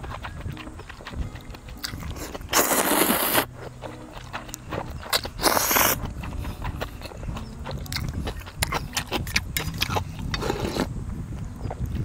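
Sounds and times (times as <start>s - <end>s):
slurping noodles: 1.8s - 3.5s, 4.2s - 6.6s, 7.8s - 10.9s.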